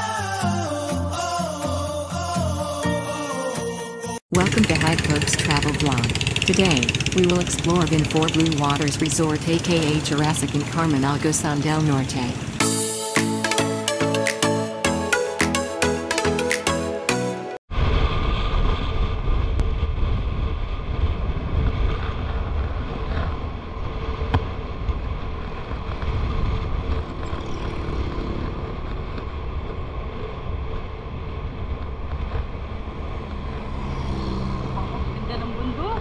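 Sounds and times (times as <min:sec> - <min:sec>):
motorcycle engine running: 0:04.3 - 0:12.6, 0:21.2 - 0:36.0.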